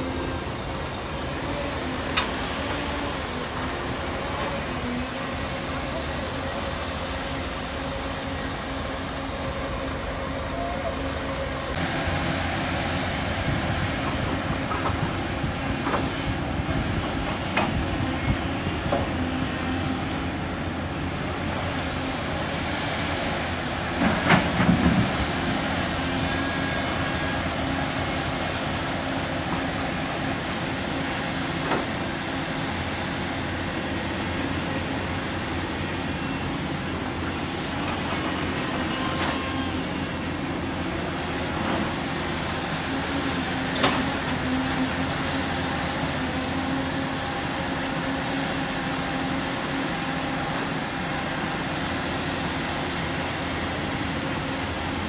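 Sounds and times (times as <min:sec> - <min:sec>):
excavator diesel engine running: 0:00.0 - 0:55.0.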